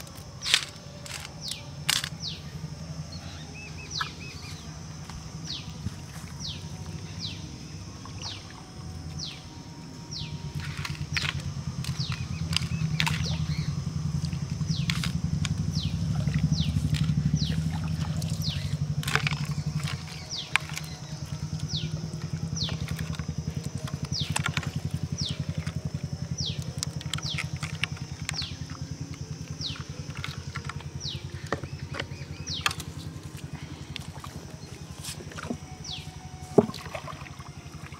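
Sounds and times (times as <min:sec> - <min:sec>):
small engine chugging: 0:00.0 - 0:37.9
downward-whistling bird calls: 0:29.5 - 0:37.2.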